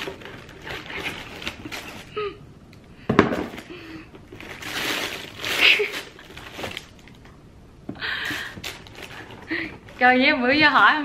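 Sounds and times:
tissue paper rustling: 0:00.0 - 0:02.2, 0:04.3 - 0:07.2, 0:08.2 - 0:10.8.

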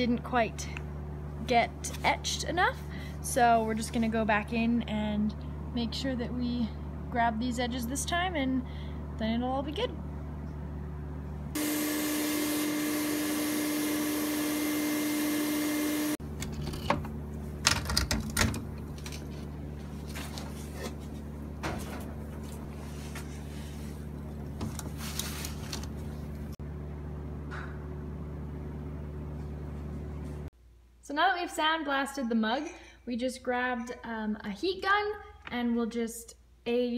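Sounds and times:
steady low hum: 0:00.0 - 0:31.1
sandblaster hissing: 0:11.6 - 0:16.2.

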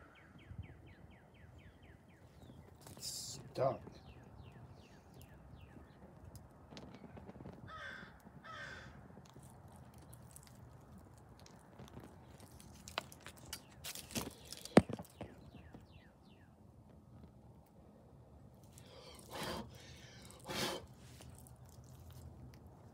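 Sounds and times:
small birds chirping: 0:00.0 - 0:07.9, 0:08.5 - 0:17.4
crow cawing: 0:07.7 - 0:09.0.

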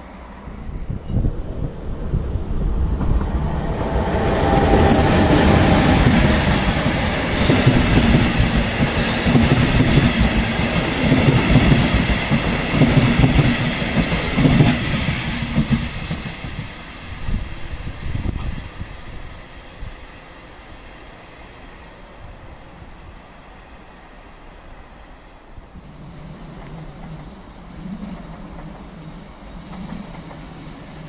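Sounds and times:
train passing: 0:00.0 - 0:31.0
wheels clattering on rails: 0:02.7 - 0:16.8, 0:25.9 - 0:31.0.

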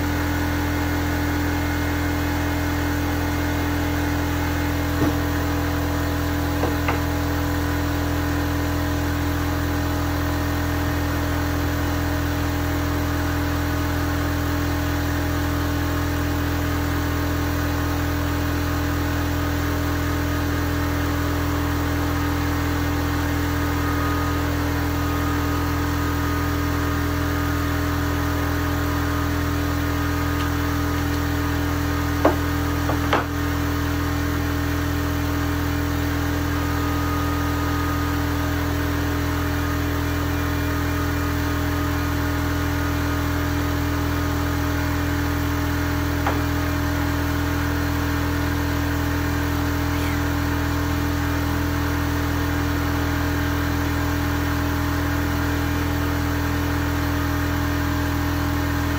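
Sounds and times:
electric motor humming: 0:00.0 - 0:08.4, 0:21.7 - 0:53.0.

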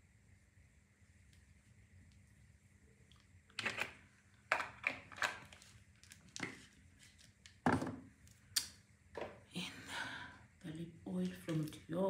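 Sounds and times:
small objects knocking and clicking: 0:03.6 - 0:06.6.

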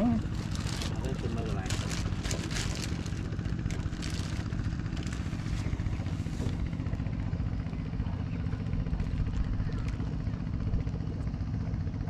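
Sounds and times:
engine humming: 0:00.0 - 0:12.0
plastic bag crinkling: 0:00.2 - 0:06.2.

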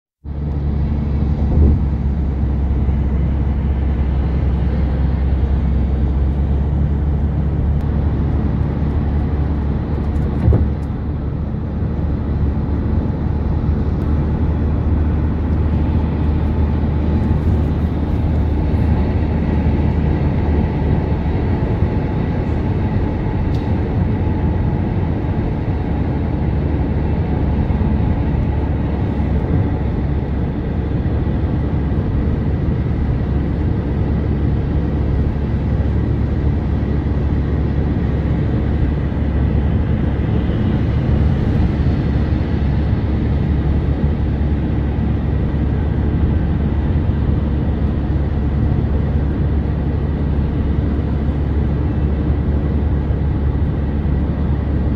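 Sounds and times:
car engine and tyre noise: 0:00.2 - 0:54.9.

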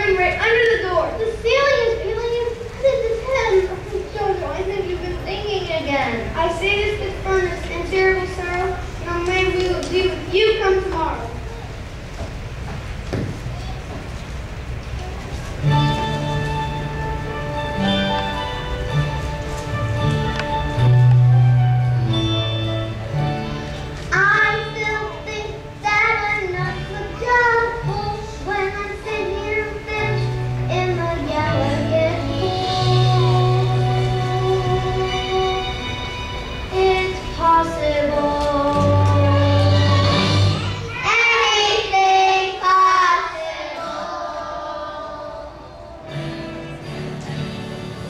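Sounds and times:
instrumental accompaniment: 0:14.9 - 0:41.7
child singing: 0:24.1 - 0:35.9, 0:36.7 - 0:46.1.

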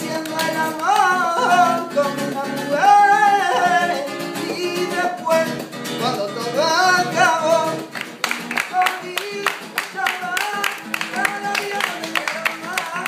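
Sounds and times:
acoustic guitar strummed: 0:00.0 - 0:13.0
person singing: 0:00.0 - 0:13.0.

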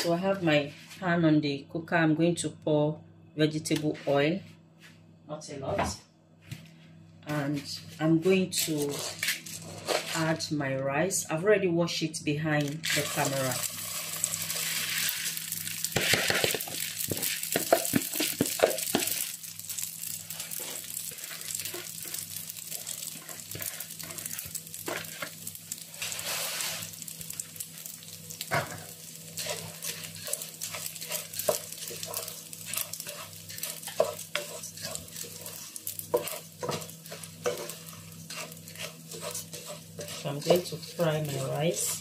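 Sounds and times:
wooden spatula scraping pan: 0:08.6 - 0:10.3, 0:20.3 - 0:25.4, 0:29.4 - 0:42.0
rice sizzling in hot oil: 0:12.8 - 0:42.0.

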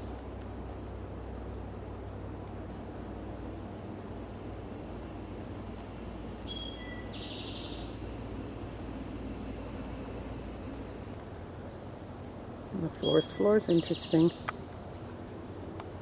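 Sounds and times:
distant highway traffic: 0:00.0 - 0:16.0
high bird chirps: 0:06.5 - 0:07.9.

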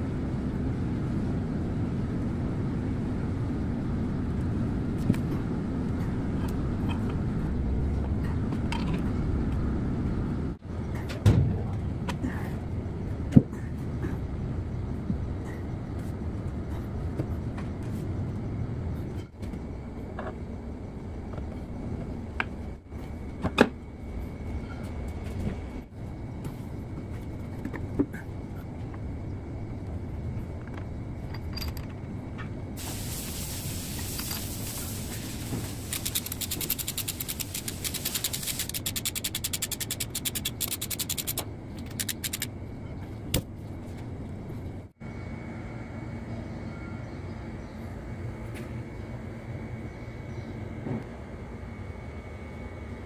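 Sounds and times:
workshop low rumble: 0:00.0 - 0:53.0
metal clinks and knocks: 0:31.2 - 0:32.0
hiss: 0:32.8 - 0:41.0.

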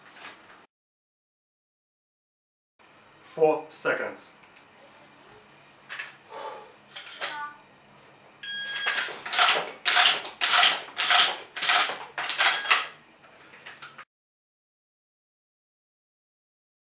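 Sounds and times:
electronic beep: 0:08.4 - 0:09.1, 0:12.5 - 0:12.9.

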